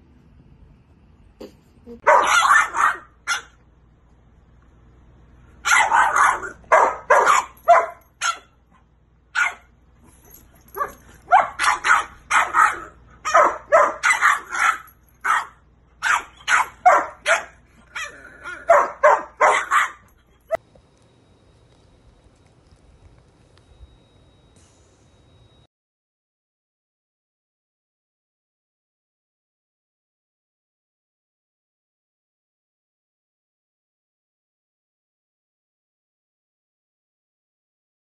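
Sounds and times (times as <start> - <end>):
puppy barking in high yaps: 1.9 - 3.6, 5.6 - 8.6, 9.3 - 9.7, 10.7 - 20.6.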